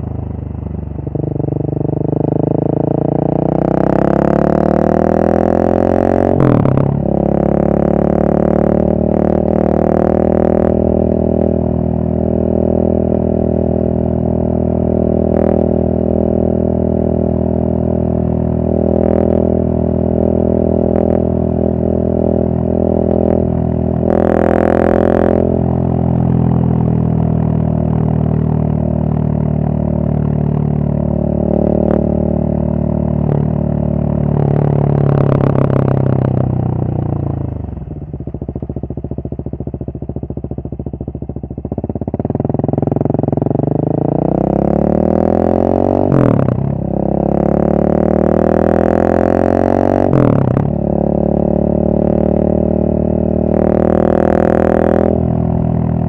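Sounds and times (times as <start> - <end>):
motorcycle engine cruising: 0.0 - 56.0.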